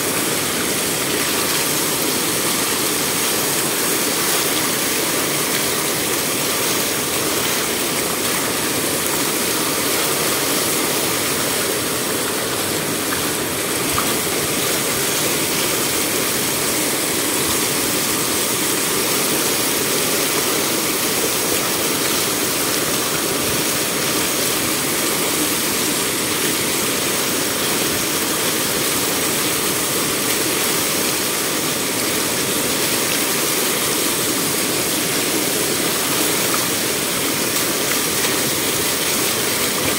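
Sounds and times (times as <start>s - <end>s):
churning water: 0.0s - 39.9s
water pouring over stone lip: 0.0s - 39.9s.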